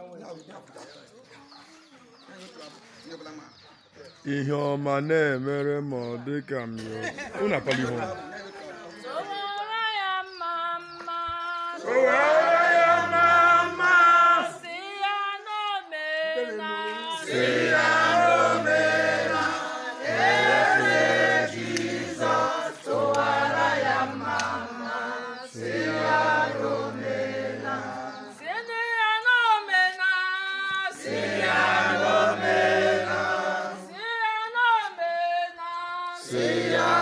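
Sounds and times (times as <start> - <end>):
group singing unaccompanied: 9.0 - 37.0.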